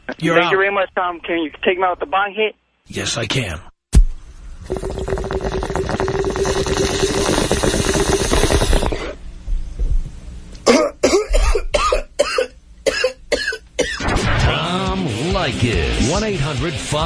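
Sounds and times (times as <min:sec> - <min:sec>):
water pipe bubbling: 0:04.6 - 0:09.2
person coughing: 0:10.6 - 0:14.0.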